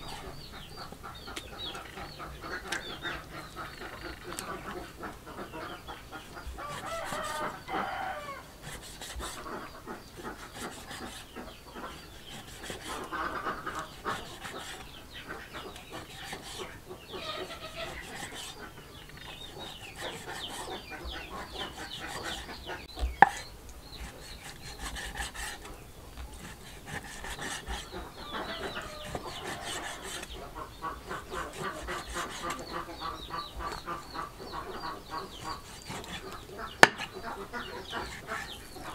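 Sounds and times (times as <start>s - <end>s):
chickens clucking: 0.0s - 38.9s.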